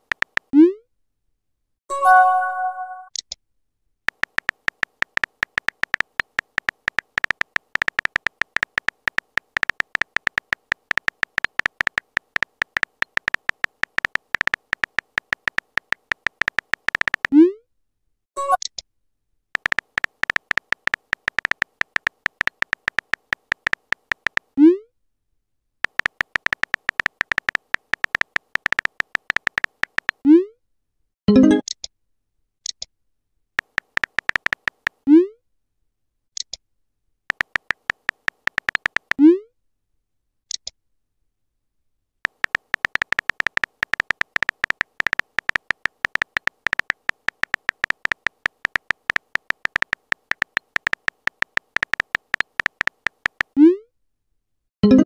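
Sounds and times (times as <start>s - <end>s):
keyboard tap clicks: 0.0s - 0.5s, 4.1s - 17.3s, 19.6s - 24.5s, 25.8s - 30.2s, 33.6s - 35.0s, 37.3s - 39.2s, 42.2s - 53.6s
notification blip: 1.9s - 3.1s, 31.3s - 31.7s.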